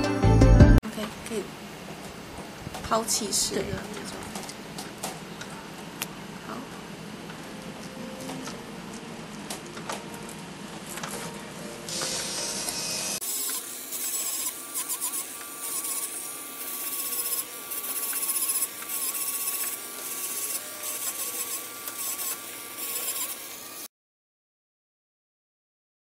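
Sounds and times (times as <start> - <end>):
electric foot file motor whine: 11.9 - 23.9.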